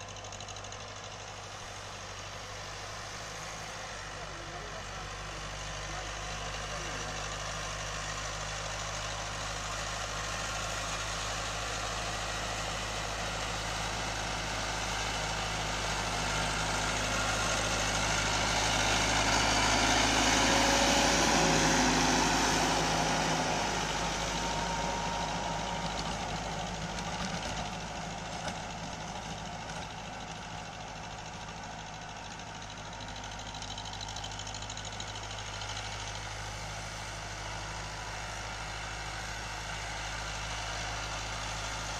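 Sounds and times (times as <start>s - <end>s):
tractor diesel engine running: 0.0s - 41.9s
tiller blades churning soil: 13.0s - 36.0s.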